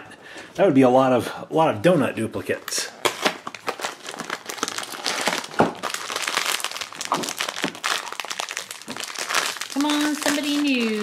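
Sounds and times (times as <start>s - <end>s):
foil wrapper crinkling: 3.0s - 11.0s.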